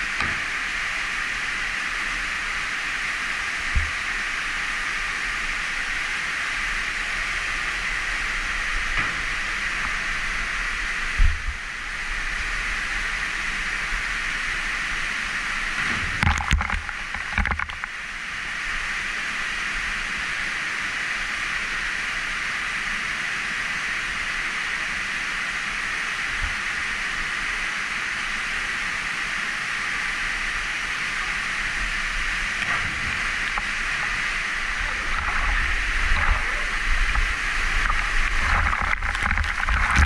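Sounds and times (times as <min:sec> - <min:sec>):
loud knocks and splashes: 0:15.8 - 0:17.8, 0:32.6 - 0:34.3, 0:37.1 - 0:40.0
waterfall rushing: 0:28.7 - 0:40.0.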